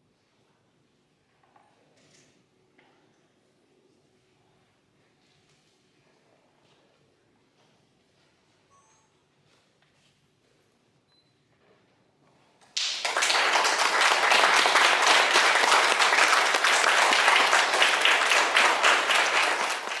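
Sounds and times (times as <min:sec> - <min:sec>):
audience applause: 0:12.8 - 0:20.0.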